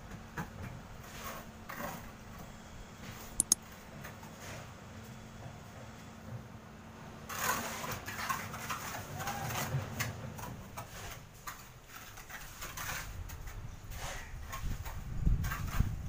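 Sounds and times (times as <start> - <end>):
trowel scraping wet cement: 10.9 - 16.0.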